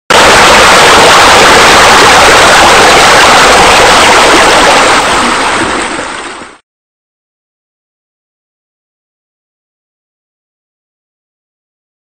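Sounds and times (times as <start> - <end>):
rush of water: 0.1 - 6.6.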